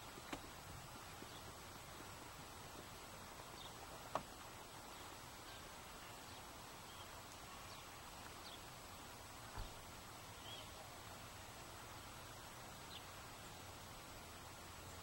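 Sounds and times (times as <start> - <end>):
outdoor background noise: 0.0 - 15.0
faint bird chirps: 9.5 - 11.0.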